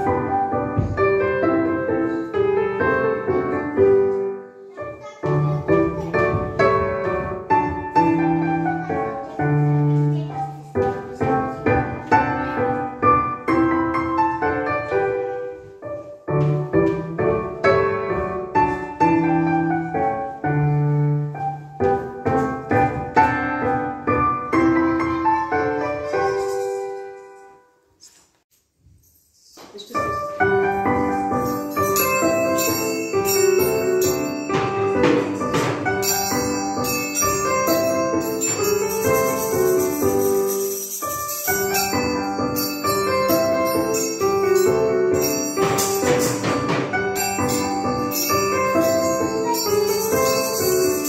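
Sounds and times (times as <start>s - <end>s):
lively piano music: 0.0s - 27.9s, 29.6s - 51.0s
jingling bells: 26.0s - 27.4s, 28.8s - 51.0s.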